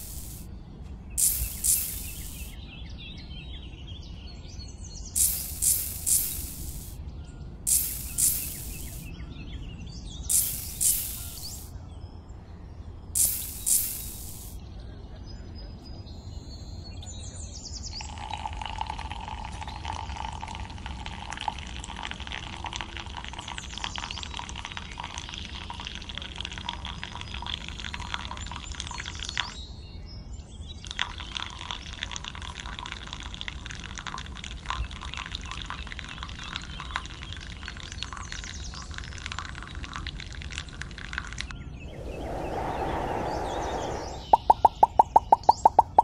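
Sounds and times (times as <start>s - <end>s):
water trickling onto sand: 0.0s - 0.4s, 1.2s - 2.5s, 5.2s - 7.0s, 7.7s - 9.0s, 10.3s - 11.7s, 13.2s - 14.6s.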